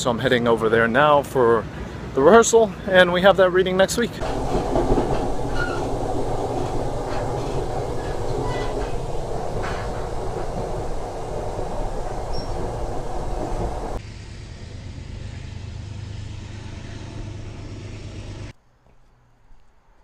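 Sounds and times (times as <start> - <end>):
train rumbling inside passenger car: 4.2 - 18.5.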